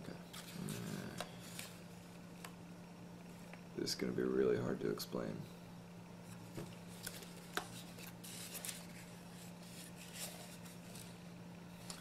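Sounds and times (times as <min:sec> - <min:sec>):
low steady hum: 0:00.0 - 0:12.0
paper rustling and crinkling: 0:06.3 - 0:12.0.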